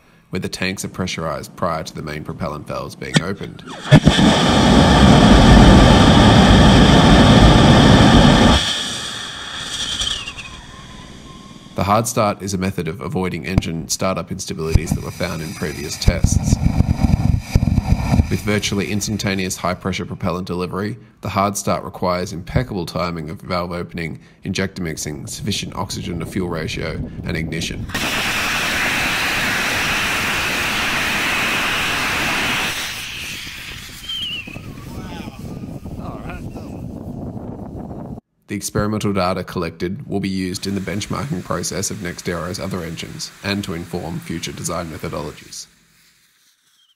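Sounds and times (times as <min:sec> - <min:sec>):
rocket engine roaring: 0:00.8 - 0:13.8, 0:14.5 - 0:20.5, 0:25.1 - 0:36.7, 0:40.3 - 0:45.7
faint hiss: 0:07.0 - 0:20.4, 0:40.1 - 0:46.9.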